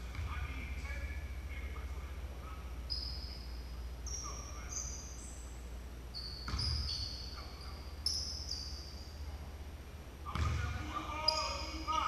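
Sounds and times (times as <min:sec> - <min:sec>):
sneakers squeaking: 0:00.0 - 0:01.4, 0:02.7 - 0:09.6, 0:10.3 - 0:12.0
steady low hum: 0:00.0 - 0:12.0
basketball bouncing on wooden floor: 0:06.4 - 0:07.0, 0:10.3 - 0:10.7.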